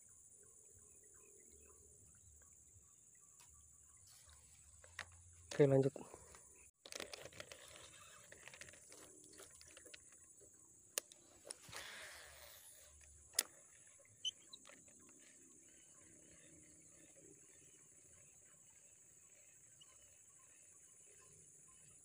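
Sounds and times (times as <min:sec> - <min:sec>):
fishing reel whir: 0:07.0 - 0:10.2, 0:11.0 - 0:17.2
fishing reel clicks: 0:11.0 - 0:15.1
high-pitched hiss: 0:11.6 - 0:13.0.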